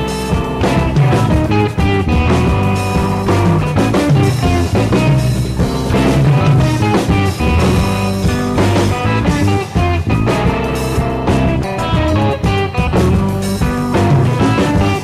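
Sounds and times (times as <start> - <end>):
rock music with guitar and drums: 0.0 - 15.0.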